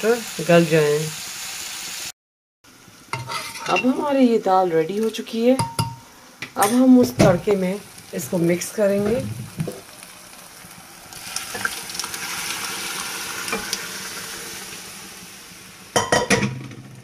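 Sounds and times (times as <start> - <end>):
food sizzling in hot pan: 0.0 - 17.0
metal knocking on pan: 5.6 - 6.0.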